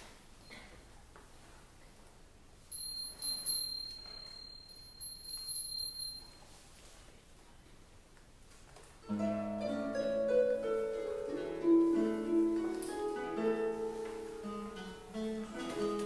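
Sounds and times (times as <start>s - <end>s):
high-pitched metal chime: 2.7s - 6.6s.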